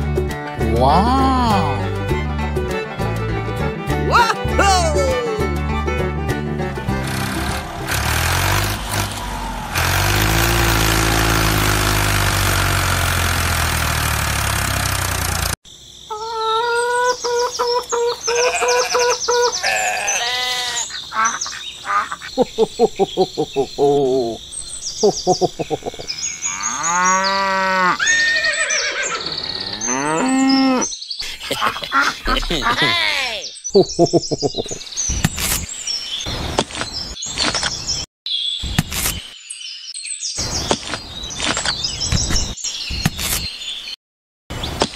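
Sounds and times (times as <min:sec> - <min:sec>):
rough motor drone: 0:06.8 - 0:15.6
farm animal calls: 0:16.1 - 0:22.4, 0:25.0 - 0:30.9
short chirps and squeaks: 0:40.7 - 0:43.6.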